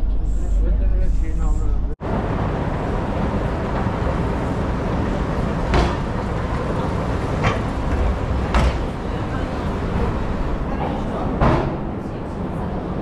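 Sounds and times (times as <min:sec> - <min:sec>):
escalator rumbling: 0:00.0 - 0:13.0.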